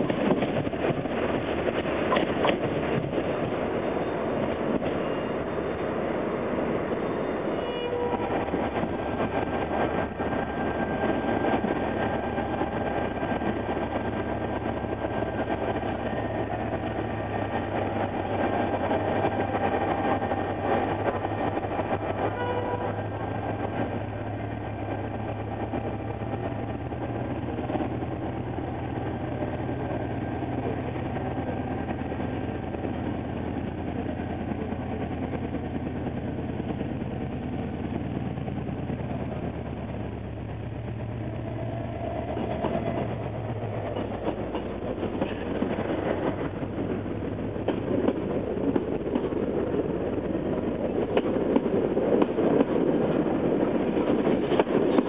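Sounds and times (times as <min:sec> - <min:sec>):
diesel locomotive engine drone: 0:00.0 - 0:55.0.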